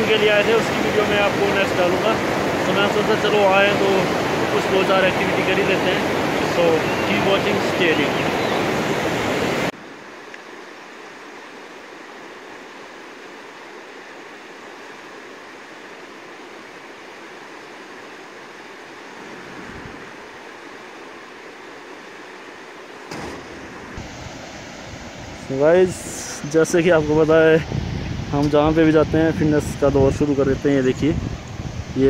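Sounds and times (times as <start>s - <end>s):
river rushing over rocks: 0.0s - 9.7s.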